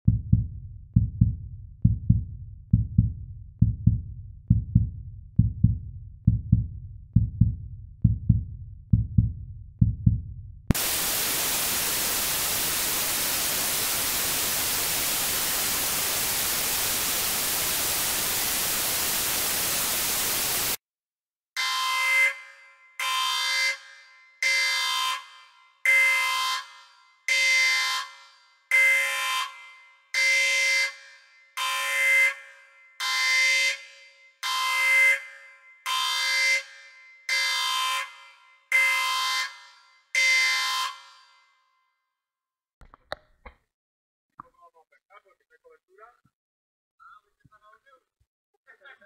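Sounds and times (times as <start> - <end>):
deep repeating thump: 0.0 - 10.8
loud static hiss: 10.8 - 20.8.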